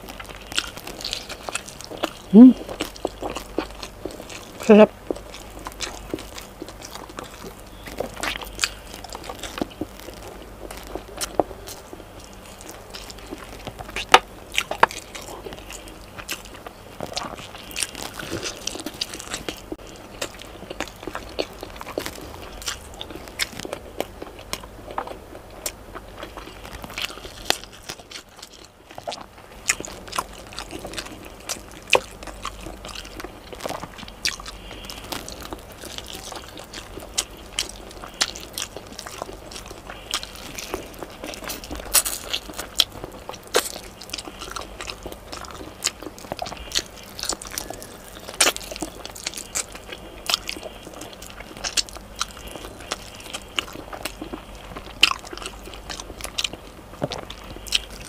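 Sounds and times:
wet mouth sounds: 0.0 - 10.0
person chewing food: 0.0 - 58.0.

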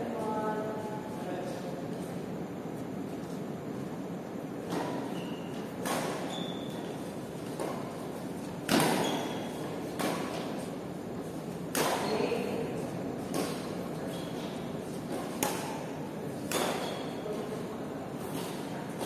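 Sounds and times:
rackets hitting shuttlecock: 5.8 - 6.4, 8.6 - 10.7, 11.6 - 12.5, 13.2 - 13.8, 15.0 - 17.2.

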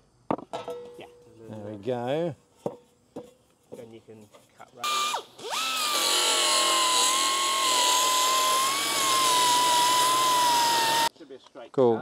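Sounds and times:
pneumatic tool cutting sheet steel: 4.8 - 11.1.

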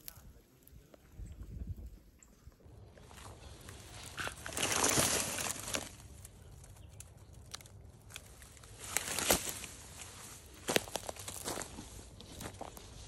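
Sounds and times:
dry leaves and twigs rustling: 0.0 - 2.0, 2.7 - 13.0
footsteps crunching dry brush: 2.8 - 13.0
twig snapping: 3.6 - 9.8.

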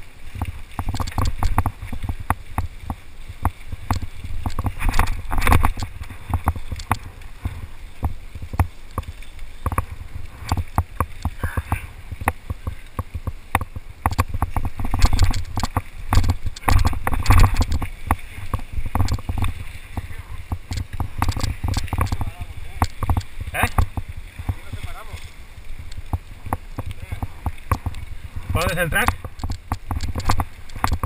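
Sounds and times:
wind on microphone: 0.0 - 31.0
mountain bike clattering on rocks: 12.3 - 19.5.

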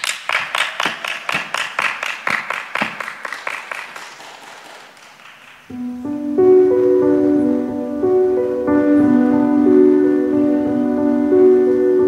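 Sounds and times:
audience clapping in unison: 0.0 - 5.8.

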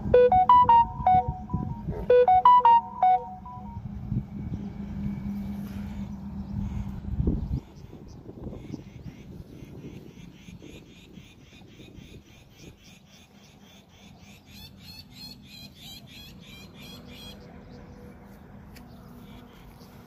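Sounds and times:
wind rumble on microphone: 3.8 - 12.9.

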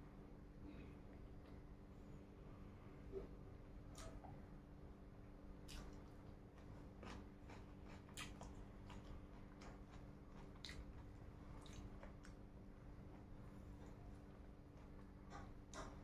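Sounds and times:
low steady hum: 0.0 - 16.0
faint chewing: 5.5 - 16.0.

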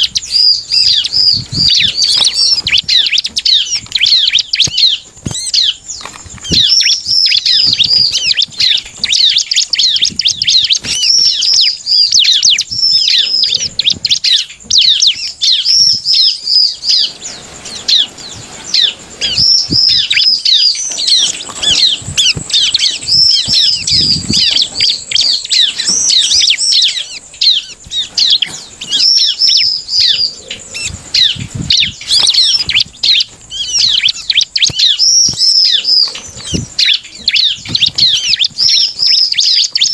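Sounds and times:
bird singing rapid chirps: 0.0 - 39.9
wing flutters and taps: 1.1 - 11.7, 30.8 - 39.9.

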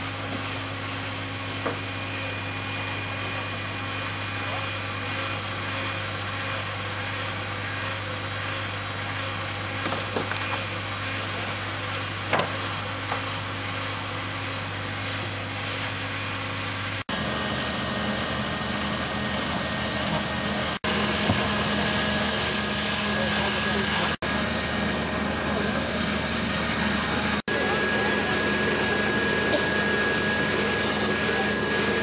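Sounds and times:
hose spray and steam hissing: 0.0 - 0.6, 11.0 - 17.0, 20.6 - 24.2
fire engine drone: 0.0 - 32.0.

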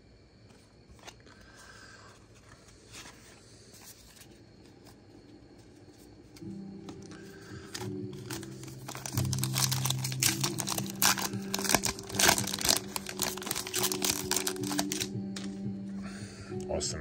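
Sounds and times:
background music with low notes: 4.5 - 17.0
card pack wrapper crinkling and tearing: 7.0 - 15.5.

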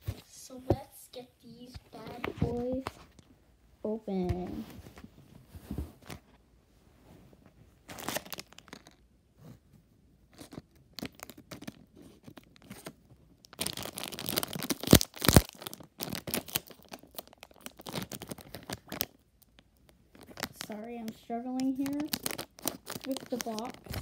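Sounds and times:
plastic packet crinkling: 7.9 - 9.0, 10.4 - 24.0
plastic packet tearing open: 7.9 - 9.0, 10.4 - 24.0.

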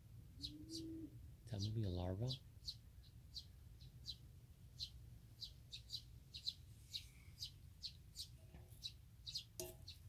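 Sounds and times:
small bird chirping: 0.4 - 10.0.

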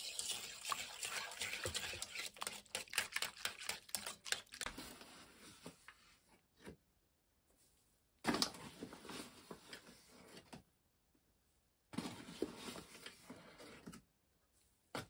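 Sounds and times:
wire whisk beating batter in bowl: 0.0 - 4.8.

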